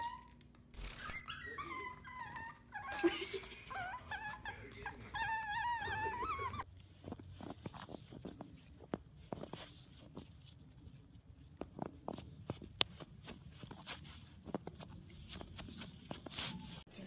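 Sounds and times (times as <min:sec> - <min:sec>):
puppy whining: 0:00.0 - 0:10.3, 0:13.6 - 0:16.9.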